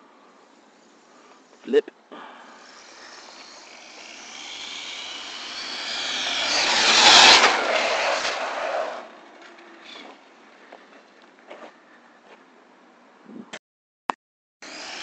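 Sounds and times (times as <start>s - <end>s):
tyre hiss on asphalt: 0.5s - 10.2s
electric motor whine: 2.4s - 10.3s, 14.6s - 15.0s.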